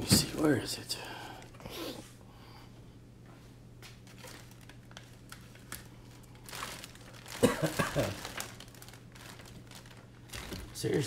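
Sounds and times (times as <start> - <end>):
packaging crinkling: 3.9 - 11.0.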